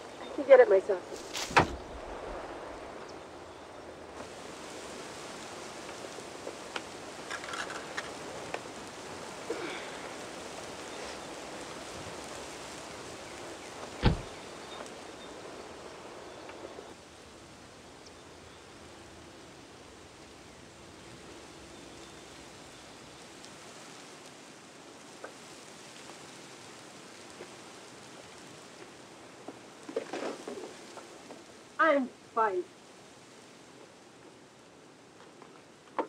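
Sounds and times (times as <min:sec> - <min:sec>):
outdoor ambience: 0:00.0 - 0:36.0
faint rustles and clicks: 0:00.2 - 0:03.2, 0:04.2 - 0:15.2, 0:23.2 - 0:32.0
car door shutting: 0:01.4 - 0:01.8, 0:14.0 - 0:14.3.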